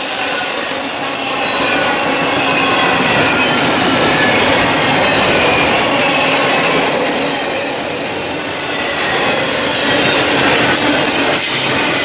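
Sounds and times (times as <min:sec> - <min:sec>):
train wheels rattling on rail: 0:00.0 - 0:12.0
high-pitched wheel squeal: 0:08.5 - 0:12.0.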